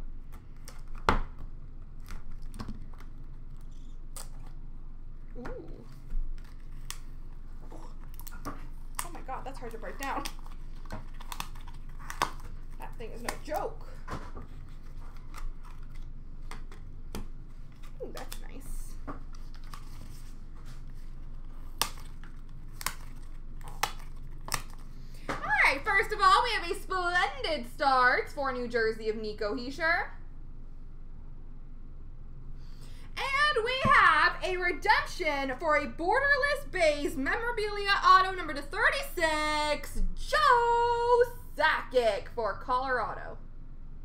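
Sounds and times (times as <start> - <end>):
low room hum: 0.0 - 44.0
packaging crinkling: 6.2 - 13.6, 14.5 - 18.4, 19.2 - 25.0.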